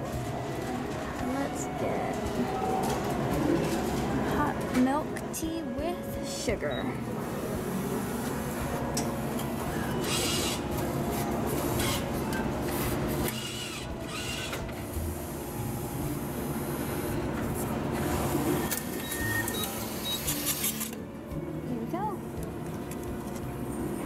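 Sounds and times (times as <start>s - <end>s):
vending machine humming: 0.0s - 24.0s.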